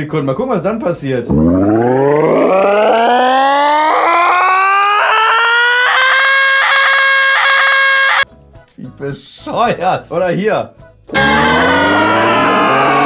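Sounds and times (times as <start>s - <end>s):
sampled voice gliding note: 1.3s - 4.4s, 11.1s - 13.0s
repeating pulse: 1.3s - 5.0s, 11.2s - 13.0s.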